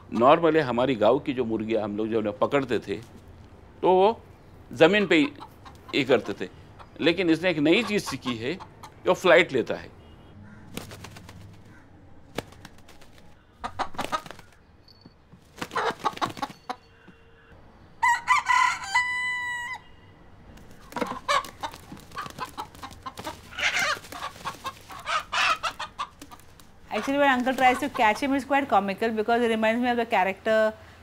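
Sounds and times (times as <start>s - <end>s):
chicken clucking: 4.8s - 9.0s, 13.6s - 14.4s, 15.6s - 16.9s, 20.8s - 28.2s
rooster crowing: 17.3s - 20.1s.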